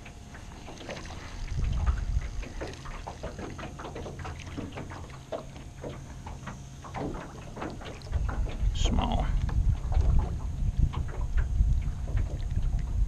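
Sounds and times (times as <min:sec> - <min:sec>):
wind rumble on microphone: 0:00.0 - 0:03.7, 0:07.0 - 0:13.0
small waves lapping against boat hull: 0:00.0 - 0:13.0.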